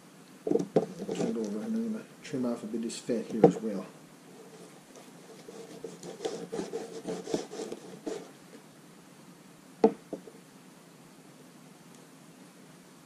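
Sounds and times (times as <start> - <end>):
knife scraping fat: 4.4 - 8.3.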